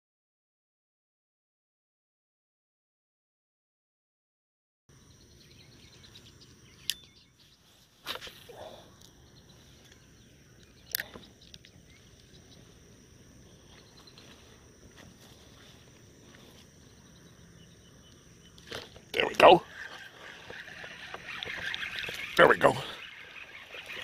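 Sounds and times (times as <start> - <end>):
insects chirring: 4.9 - 24.0.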